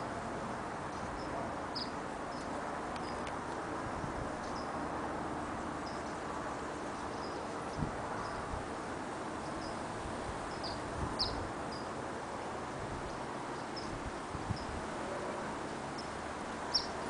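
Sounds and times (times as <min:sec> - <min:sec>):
steady background noise: 0:00.0 - 0:17.0
small birds chirping: 0:00.9 - 0:03.3, 0:04.4 - 0:04.8, 0:05.8 - 0:08.5, 0:09.4 - 0:09.8, 0:10.5 - 0:11.9, 0:13.5 - 0:14.8, 0:15.9 - 0:17.0.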